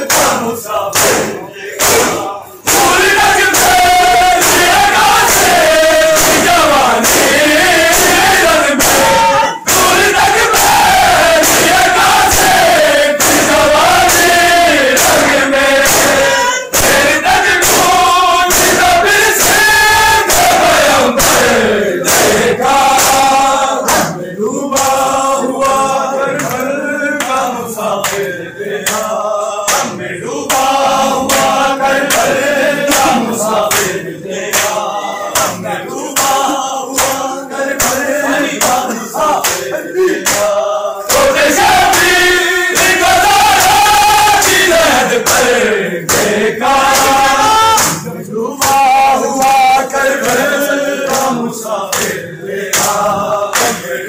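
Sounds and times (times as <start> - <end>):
chest-beating strikes: 0.0 - 12.6, 29.7 - 43.0
crowd of men chanting: 0.0 - 54.0.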